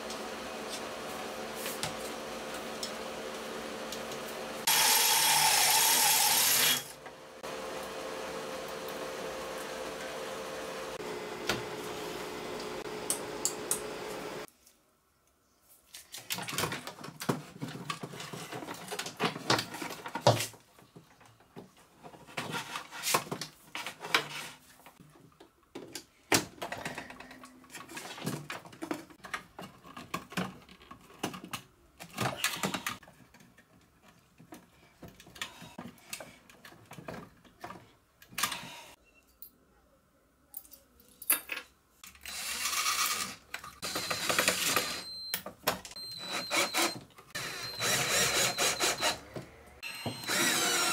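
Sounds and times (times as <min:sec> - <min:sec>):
cordless drill running: 0:04.7 - 0:07.6, 0:42.2 - 0:45.2, 0:46.0 - 0:49.2, 0:49.8 - 0:50.9
screwdriver turning screws: 0:42.0 - 0:45.1, 0:46.1 - 0:49.2, 0:50.1 - 0:50.9.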